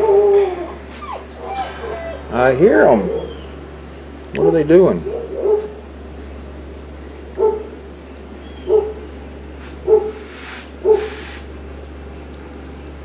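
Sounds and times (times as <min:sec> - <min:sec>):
steady low hum: 0:00.0 - 0:13.0
dog barking: 0:04.4 - 0:05.8, 0:07.4 - 0:07.7, 0:08.6 - 0:09.0, 0:09.8 - 0:10.2, 0:10.8 - 0:11.2.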